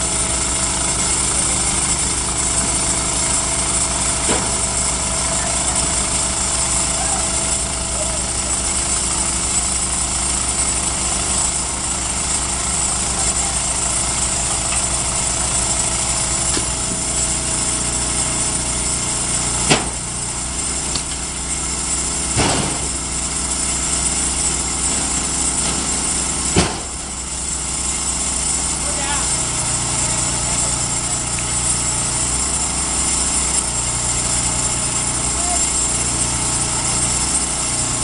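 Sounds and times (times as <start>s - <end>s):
engine running: 0.0s - 38.0s
sharp metal knocks: 19.6s - 20.1s, 22.3s - 23.0s, 26.5s - 27.0s.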